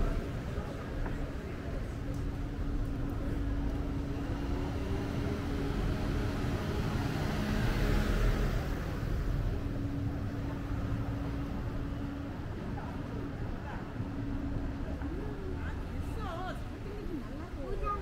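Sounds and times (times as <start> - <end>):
low traffic rumble: 0.0 - 18.0
motor vehicle passing: 4.0 - 11.0.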